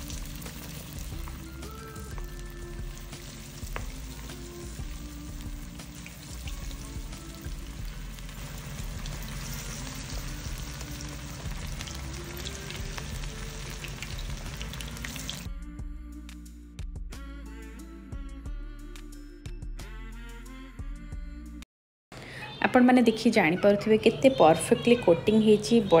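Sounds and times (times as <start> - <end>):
food sizzling in hot oil: 0.0 - 15.5
background music: 0.0 - 21.6, 22.2 - 26.0.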